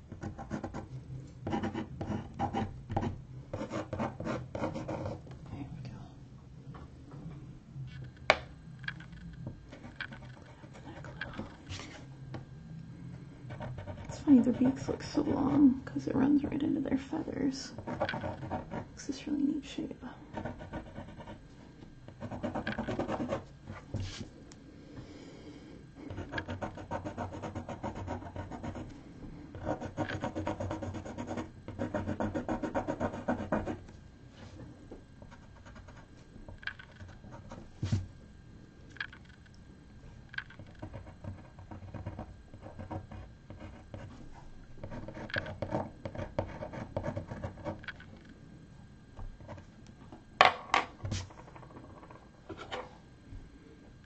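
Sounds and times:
pencil scratching on paper: 1.5s - 5.2s, 13.5s - 15.6s, 17.8s - 18.9s, 20.3s - 21.4s, 22.2s - 23.4s, 26.1s - 28.9s, 29.6s - 33.8s.

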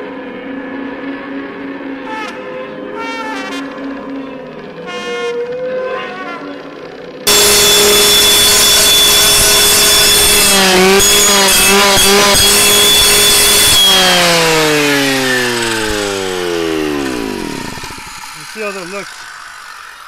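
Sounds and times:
clearing saw engine at full throttle: 2.8s - 20.0s
saw blade grinding against rock: 7.3s - 20.0s.

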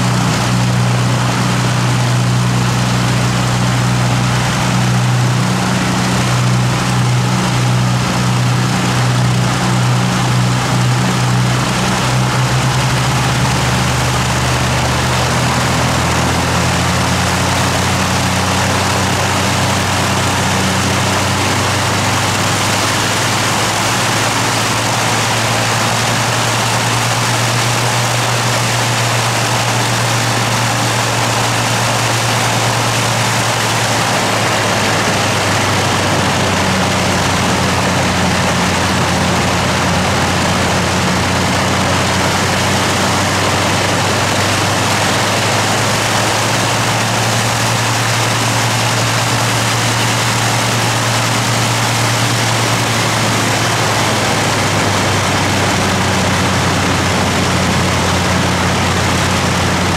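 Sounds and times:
propeller plane engines idling: 0.0s - 59.9s.

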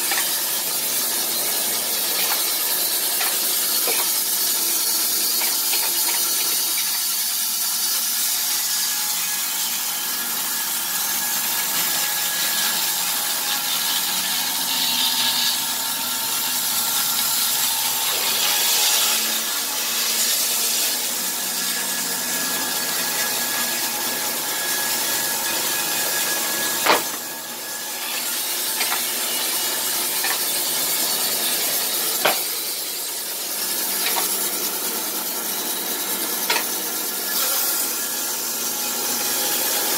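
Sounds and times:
band sawmill blade cutting log: 0.0s - 39.9s.

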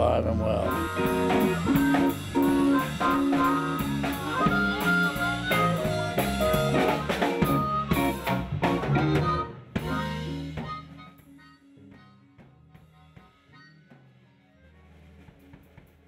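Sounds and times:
harmonica held notes: 0.0s - 15.6s
blues band playing live: 0.0s - 16.0s
electric guitar: 0.6s - 16.0s
drum kit hits: 0.7s - 11.1s.

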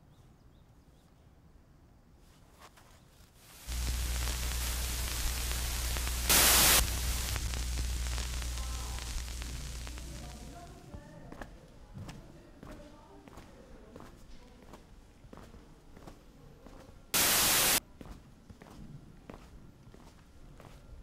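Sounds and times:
television static hiss: 3.4s - 11.0s, 17.2s - 17.8s
low electrical hum: 3.5s - 10.8s.

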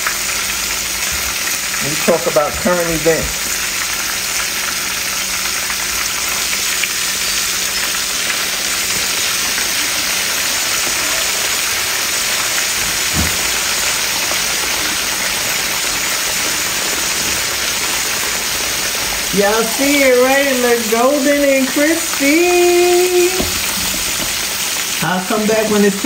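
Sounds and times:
fish sizzling in hot oil: 0.0s - 26.0s
dull knock: 13.1s - 13.5s.

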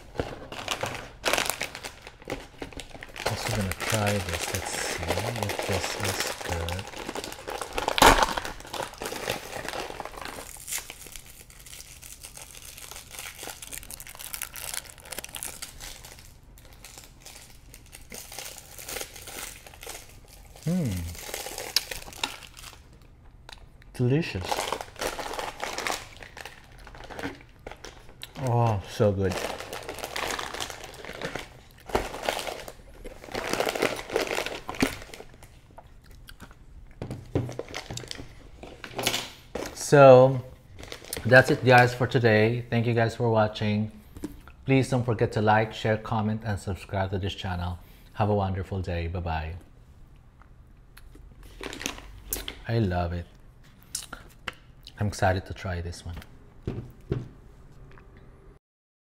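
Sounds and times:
wrappers crinkling: 0.0s - 23.1s, 24.3s - 35.8s, 40.7s - 42.0s, 51.4s - 52.6s.

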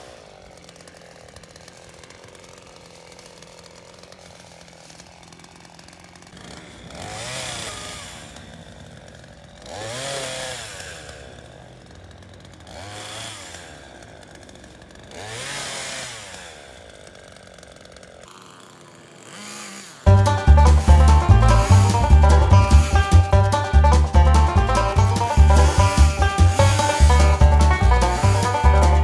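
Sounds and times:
chainsaw revving and idling: 0.0s - 29.0s
loud banjo music: 20.0s - 29.0s.

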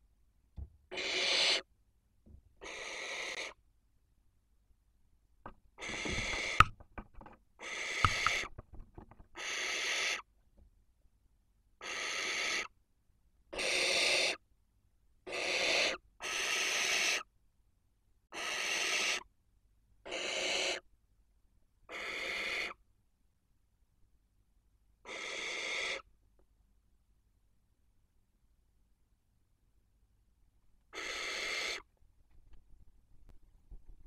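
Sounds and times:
owls hissing calls: 0.9s - 1.7s, 2.6s - 3.6s, 5.8s - 6.7s, 7.6s - 8.5s, 9.4s - 10.3s, 11.8s - 12.7s, 13.5s - 14.4s, 15.3s - 17.3s, 18.3s - 19.3s, 20.0s - 20.8s, 21.9s - 22.8s, 25.0s - 26.1s, 30.9s - 31.9s
knocks and scrapes: 5.5s - 7.4s, 8.0s - 9.4s.

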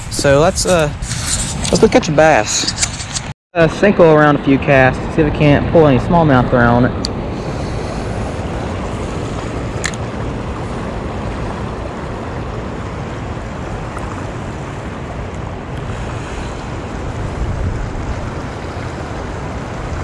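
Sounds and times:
wind buffeting microphone: 0.0s - 20.0s
sharp click: 2.6s - 3.3s.

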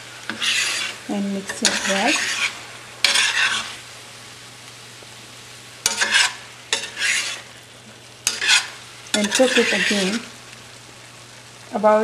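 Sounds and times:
spoon scraping a metal pot: 0.3s - 3.8s, 5.9s - 7.5s, 8.3s - 10.2s.

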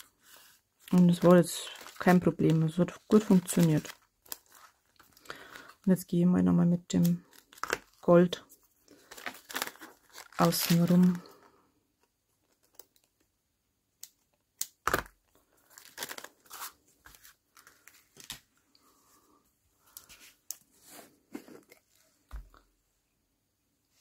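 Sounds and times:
plastic bag crinkling: 0.8s - 6.0s, 6.9s - 11.6s, 14.8s - 18.4s.

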